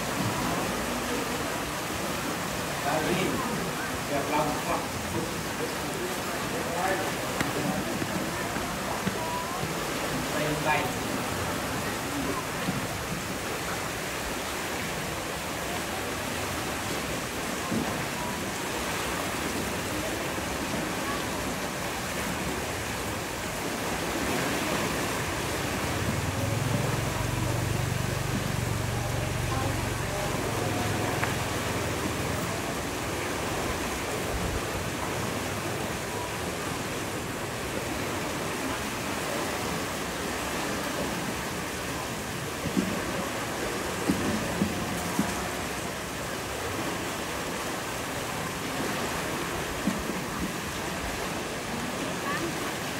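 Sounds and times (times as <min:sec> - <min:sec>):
water rushing from dam sluice: 0:00.0 - 0:52.9.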